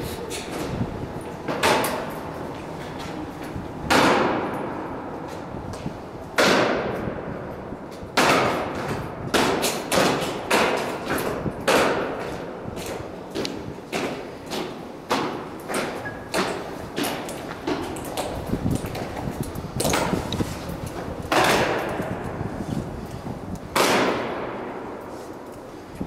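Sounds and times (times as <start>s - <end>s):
boots striking stone floor echoing: 8.2s - 22.4s.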